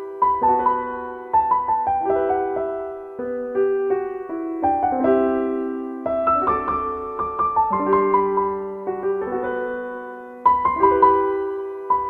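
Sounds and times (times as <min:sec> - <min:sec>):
slow piano melody: 0:00.0 - 0:12.0.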